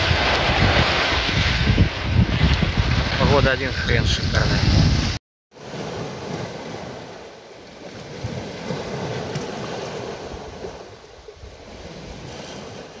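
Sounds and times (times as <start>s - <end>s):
wind buffeting microphone: 0.0s - 7.2s
surf washing onto pebble beach: 0.0s - 13.0s.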